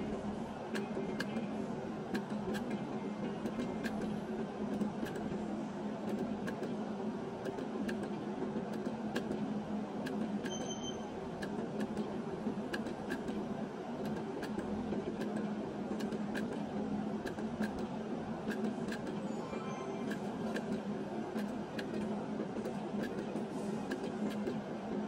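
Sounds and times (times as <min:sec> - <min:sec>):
short beep: 0:10.5 - 0:11.1.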